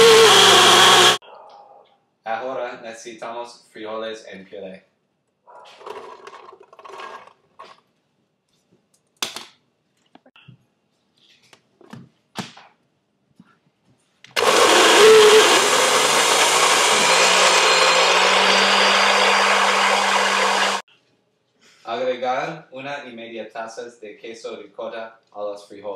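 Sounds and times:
blender running: 0:00.0 - 0:01.2, 0:14.4 - 0:20.8.

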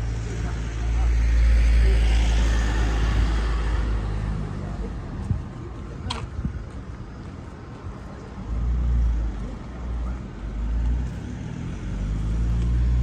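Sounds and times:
low rumble of road traffic: 0:00.0 - 0:13.0
truck engine close by: 0:08.4 - 0:13.0.

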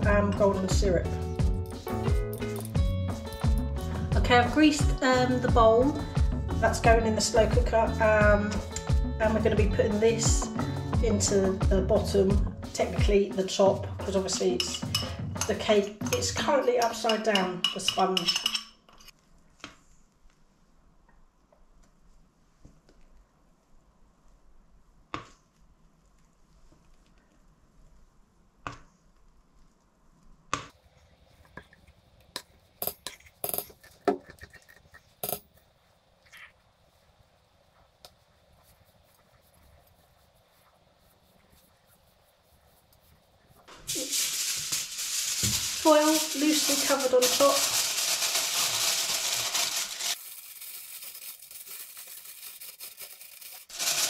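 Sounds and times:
metal bowls knocking: 0:14.6 - 0:18.6
aluminium foil crinkling: 0:43.7 - 0:54.0.

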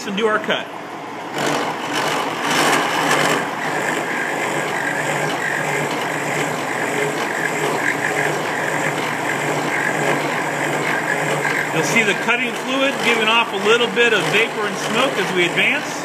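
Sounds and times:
milling machine hum: 0:00.0 - 0:16.0
saw cutting metal: 0:01.3 - 0:16.0.

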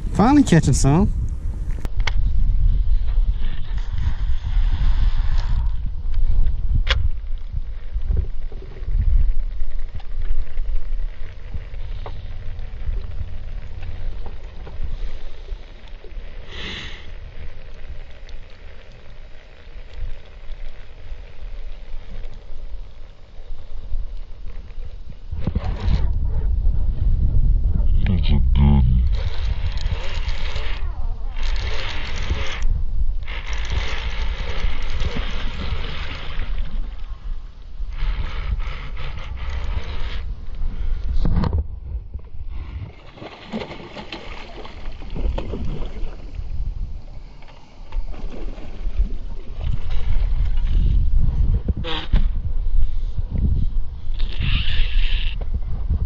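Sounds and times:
wind buffeting microphone: 0:00.0 - 0:15.7, 0:22.9 - 0:56.0
short hiss: 0:16.5 - 0:17.1
fishing reel whirring: 0:29.1 - 0:37.3, 0:37.9 - 0:41.0, 0:54.1 - 0:55.4.

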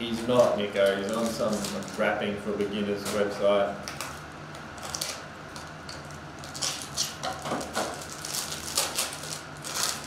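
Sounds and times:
foil wrapper crinkling: 0:00.2 - 0:02.2, 0:04.8 - 0:10.0.

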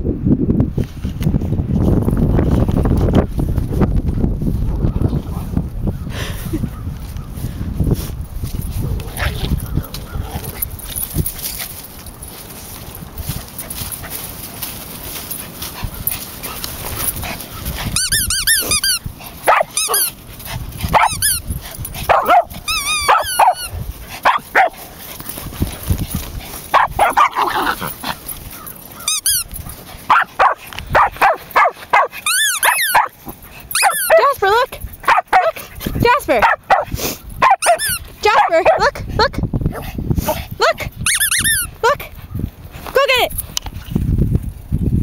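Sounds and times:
dog yapping: 0:18.0 - 0:20.2, 0:20.9 - 0:24.8, 0:26.7 - 0:34.4, 0:35.0 - 0:35.6, 0:36.3 - 0:38.9.

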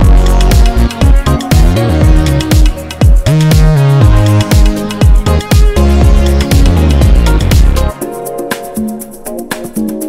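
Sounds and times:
deep sustained bass: 0:00.0 - 0:08.0.

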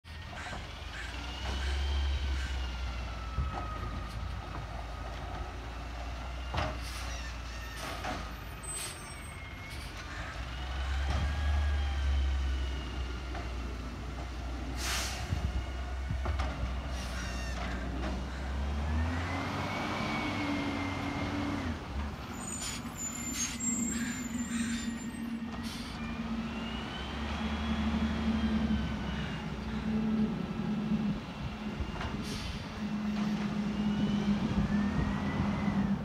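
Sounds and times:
air-brake hiss: 0:14.8 - 0:15.4, 0:32.2 - 0:32.7
truck engine revving: 0:17.6 - 0:36.0.

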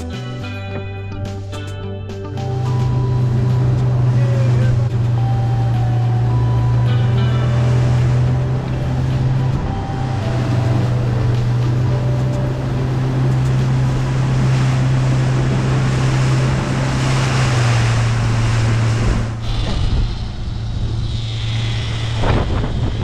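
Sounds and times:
churning wake water: 0:00.0 - 0:23.0
outboard motors droning: 0:02.3 - 0:23.0
wind rushing: 0:13.5 - 0:23.0.

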